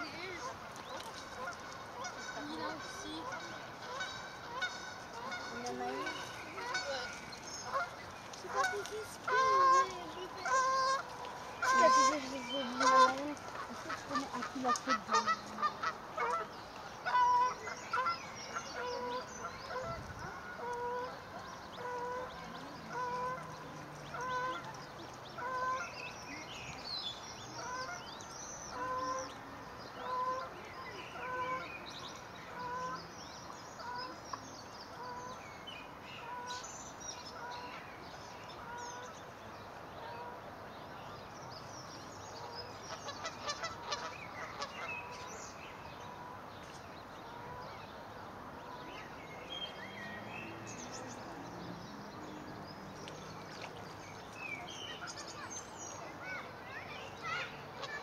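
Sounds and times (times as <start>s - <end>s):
swan honking: 0.0s - 24.8s, 25.4s - 26.4s, 28.7s - 29.3s, 30.0s - 31.8s, 42.4s - 45.3s
cygnets peeping: 0.0s - 29.4s.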